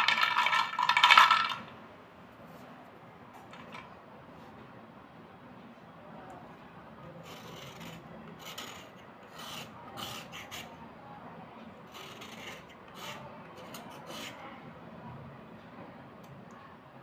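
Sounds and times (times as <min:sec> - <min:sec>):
slate pencils scraping: 0:07.2 - 0:10.8, 0:11.9 - 0:14.4.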